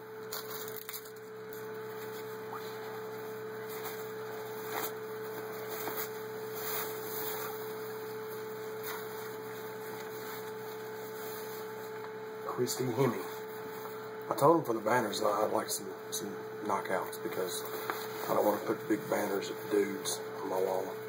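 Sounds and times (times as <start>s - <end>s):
electrical hum: 0.0s - 21.0s
cloth banner rustling: 3.6s - 12.0s.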